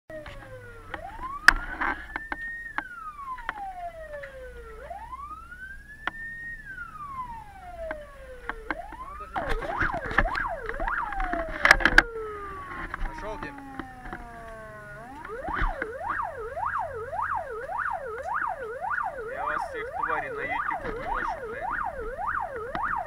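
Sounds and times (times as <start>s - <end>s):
emergency vehicle siren: 0.1s - 23.0s
low engine rumble: 0.1s - 23.0s
sharp clicks and knocks: 7.8s - 12.1s.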